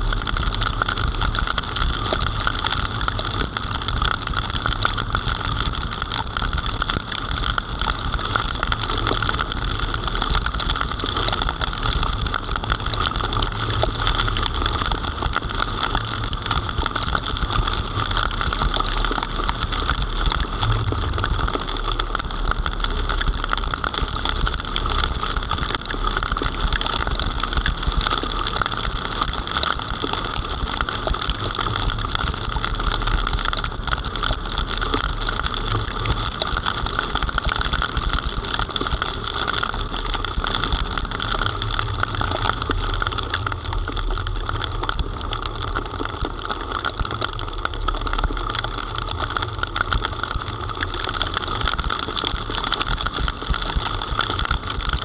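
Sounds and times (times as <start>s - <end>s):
heavy rain pattering: 0.0s - 55.0s
car driving on wet streets: 19.2s - 26.4s.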